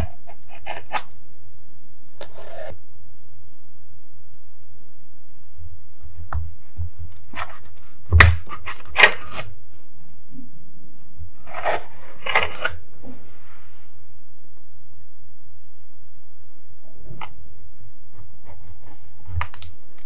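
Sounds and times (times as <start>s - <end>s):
knife scraping through dough: 0.0s - 1.1s, 11.4s - 12.8s.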